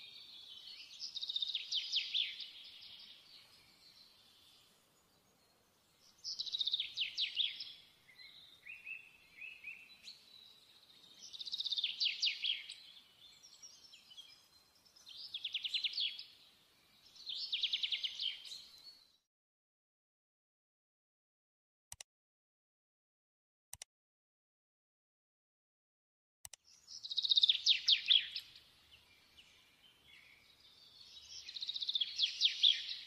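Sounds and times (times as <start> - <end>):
soft bird chirps: 0.0 - 19.2, 26.5 - 33.0.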